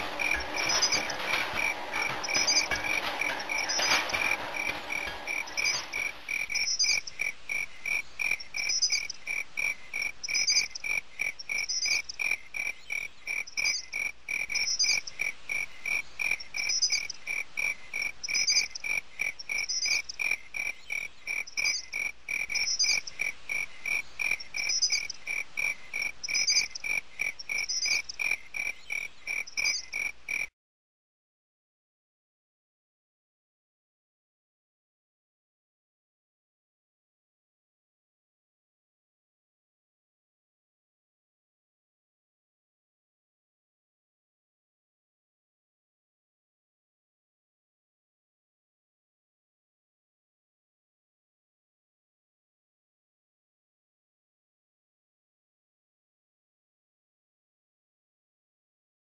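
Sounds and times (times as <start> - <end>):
crickets chirping: 0.0 - 30.5
frogs calling: 5.3 - 30.5.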